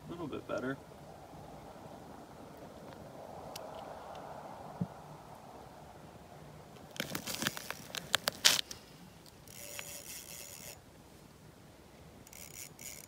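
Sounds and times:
gear clicks and rustles: 6.8 - 10.8, 12.2 - 13.0.

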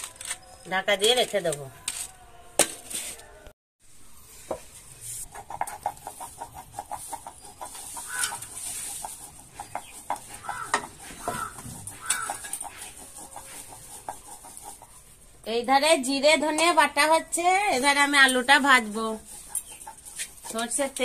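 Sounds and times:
seeds ground on a stone slab: 4.9 - 15.0.

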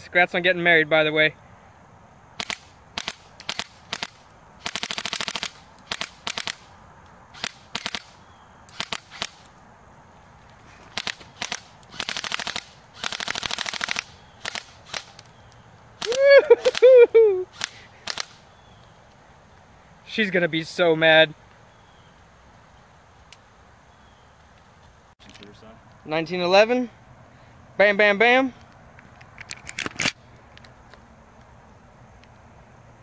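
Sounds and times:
airsoft gun firing: 2.4 - 6.7, 7.4 - 9.5, 10.9 - 15.2, 17.5 - 18.4
loud shout: 16.0 - 17.5.

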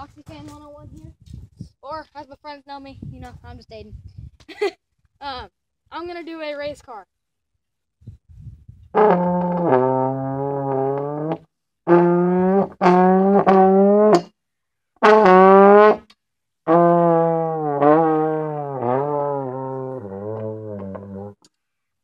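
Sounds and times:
trombone imitating race car: 8.9 - 14.3, 15.0 - 21.4.

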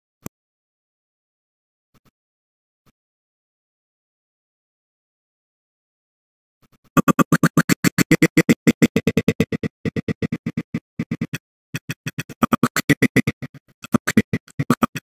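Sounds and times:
choppy scrubbed voice playback: 6.9 - 15.0.

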